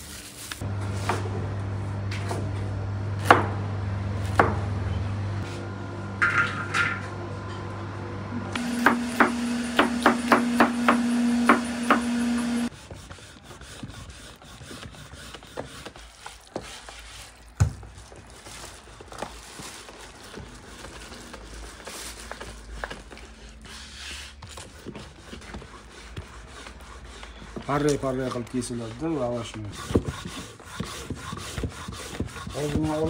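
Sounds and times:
knife chopping on cutting board: 4.2s - 4.6s, 8.8s - 12.5s
hands mixing meat filling: 12.6s - 33.0s.

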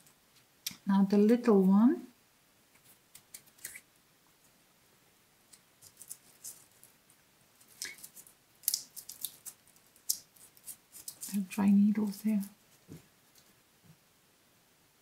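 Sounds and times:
dry twig clicking and rustling: 5.5s - 7.0s, 7.6s - 12.6s.

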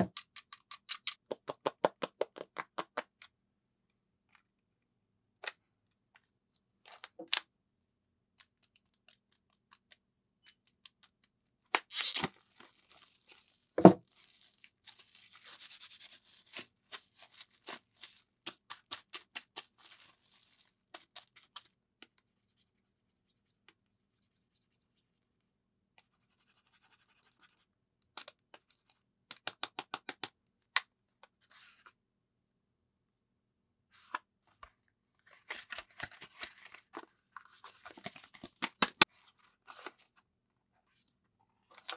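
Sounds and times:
plastic film crinkling: 11.9s - 19.0s, 19.6s - 21.6s.

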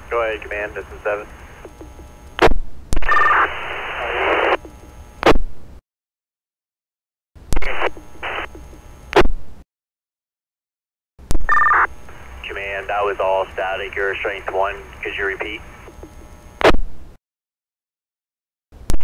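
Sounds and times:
radio static hiss: 0.0s - 5.4s, 7.6s - 9.3s, 11.6s - 16.8s
radio squelch clicks: 0.4s - 3.1s, 14.4s - 16.8s.

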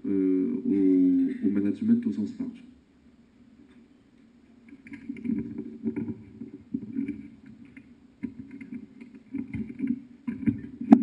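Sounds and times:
microphone handling noise: 4.6s - 11.0s.

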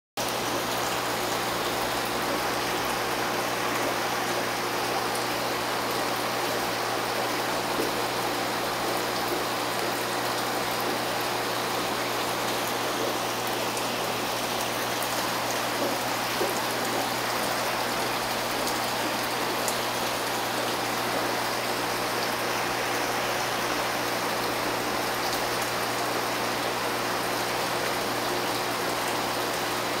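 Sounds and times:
faint low pump hum: 0.2s - 30.0s
water splashing and running: 0.2s - 30.0s.

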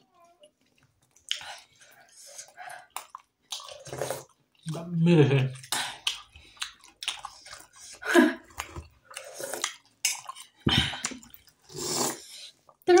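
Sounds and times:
chewing: 0.2s - 4.8s, 5.5s - 12.8s
soup slurping: 3.6s - 4.4s, 9.1s - 10.4s, 11.6s - 12.6s.

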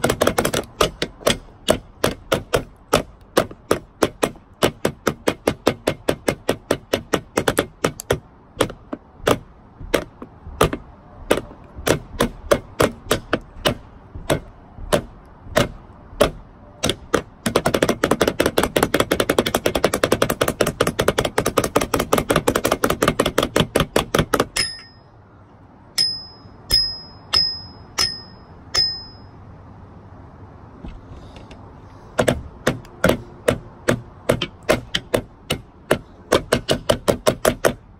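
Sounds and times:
sticks striking plastic discs: 0.0s - 25.0s, 30.8s - 37.9s
ringing high-toned strikes: 26.0s - 29.4s.

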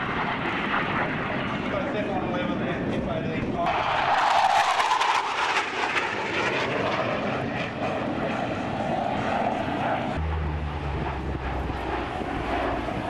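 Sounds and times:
jet flying away: 0.0s - 13.0s
turboprop engines passing overhead: 0.0s - 13.0s.

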